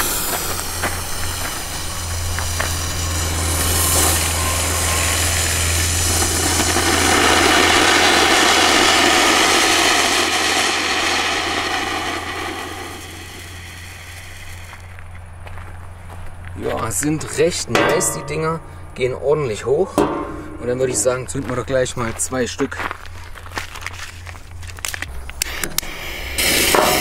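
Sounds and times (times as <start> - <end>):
fountain firework hissing: 0.0 - 15.1, 25.4 - 27.0
steady low hum: 0.0 - 27.0.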